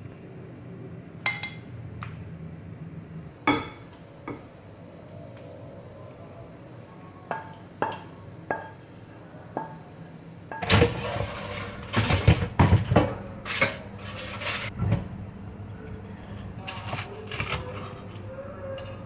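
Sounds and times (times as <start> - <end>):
air fryer basket scraping and rattling: 10.6 - 15.1, 16.0 - 18.2.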